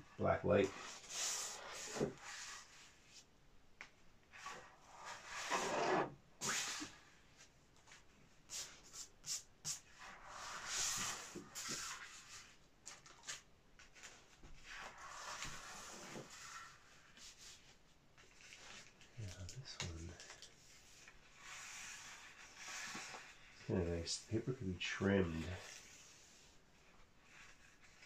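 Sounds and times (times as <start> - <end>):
paper sheets sliding and rustling: 4.3 - 7.2, 10.0 - 19.1, 20.7 - 23.8.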